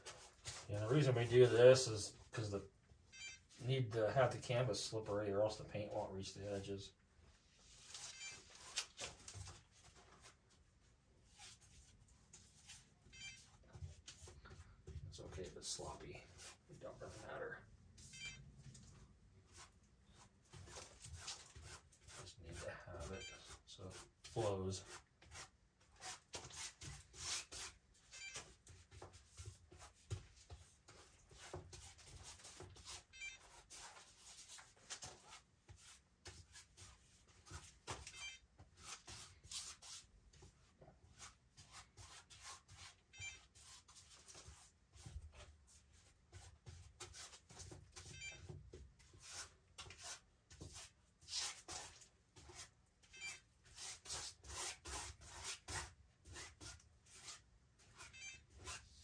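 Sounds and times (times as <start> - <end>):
hand spreading paint on canvas: 49.0 - 52.7.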